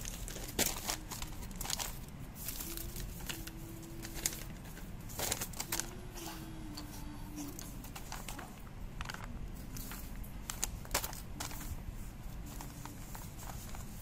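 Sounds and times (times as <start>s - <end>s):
faint hum-like tone: 0.0s - 14.0s
hands rustling paper: 0.0s - 14.0s.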